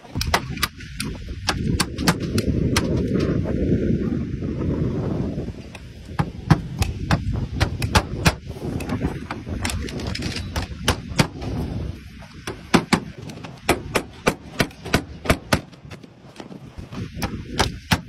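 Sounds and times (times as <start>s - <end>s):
low rumble on microphone: 0.0s - 18.0s
hammer striking nails: 0.1s - 3.2s, 6.2s - 9.0s, 10.4s - 11.5s, 12.3s - 18.0s.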